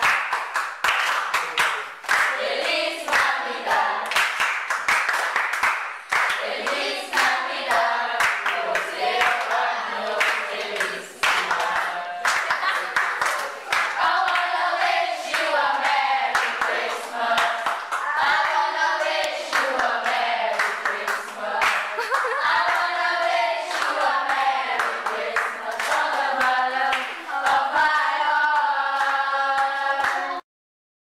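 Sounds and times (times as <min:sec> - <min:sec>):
hand clapping: 0:00.0 - 0:09.6, 0:10.2 - 0:14.5, 0:19.1 - 0:22.9, 0:23.7 - 0:30.4
children singing: 0:02.2 - 0:04.3, 0:06.2 - 0:30.4.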